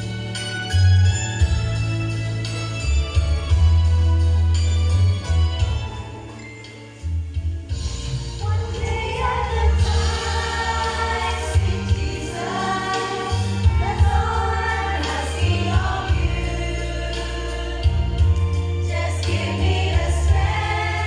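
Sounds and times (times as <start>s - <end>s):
women's choir singing a hymn: 8.5s - 21.0s.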